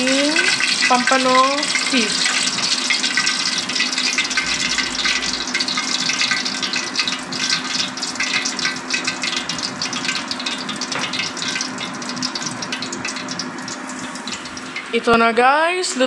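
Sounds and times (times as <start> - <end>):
oil dripping: 0.0 - 15.2
oil sizzling in a wok: 0.0 - 16.0
low hum: 3.2 - 15.0.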